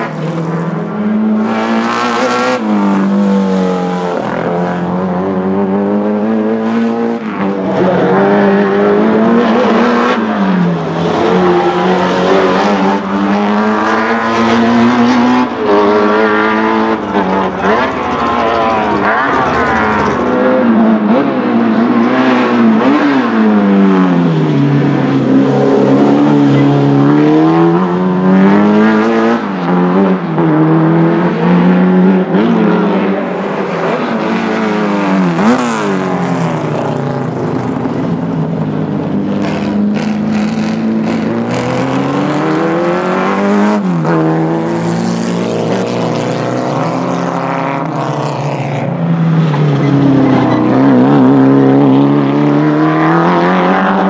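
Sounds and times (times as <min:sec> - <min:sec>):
race car engine at full throttle: 0:00.0 - 0:54.0.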